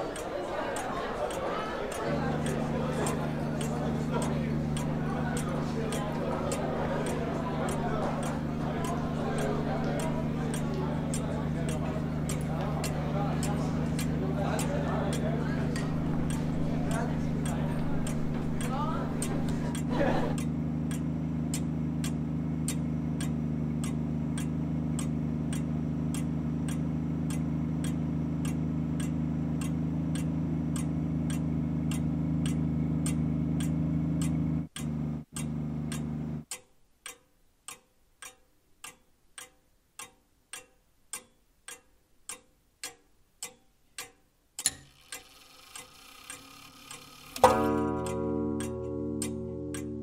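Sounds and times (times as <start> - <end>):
steady low hum: 0.0 - 36.5, 46.2 - 50.0
regular ticking: 0.0 - 50.0
sharp click: 20.4 - 50.0.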